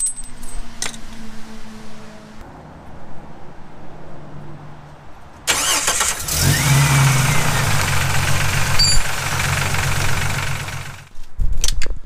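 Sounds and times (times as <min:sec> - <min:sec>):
car engine starting and idling: 0:05.5 - 0:11.1.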